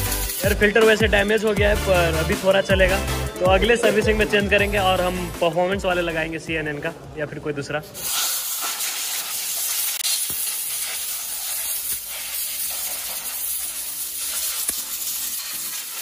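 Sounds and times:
high-pressure jet hissing: 0:00.0 - 0:01.0, 0:07.9 - 0:16.0.

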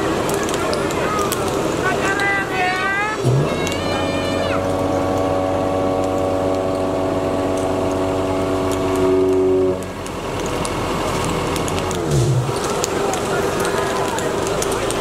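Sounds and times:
crackling fire: 0:00.0 - 0:15.0
steady held tone: 0:03.8 - 0:10.1.

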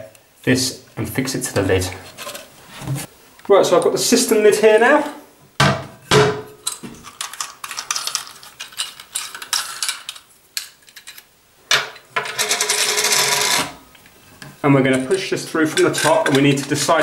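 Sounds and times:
plastic fittings scraping rattle: 0:14.8 - 0:17.0.

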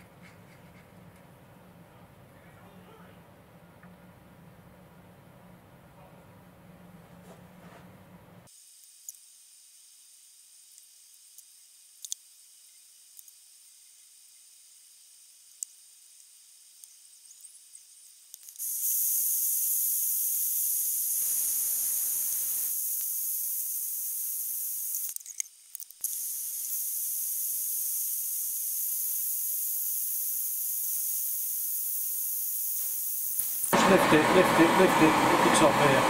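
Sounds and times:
blowtorch hissing: 0:18.6 - 0:25.1, 0:26.0 - 0:36.0
loud rush of noise: 0:33.8 - 0:36.0.

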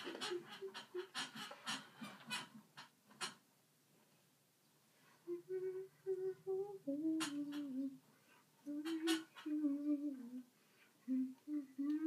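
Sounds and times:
girl humming a tune: 0:05.2 - 0:08.0, 0:08.6 - 0:12.0.

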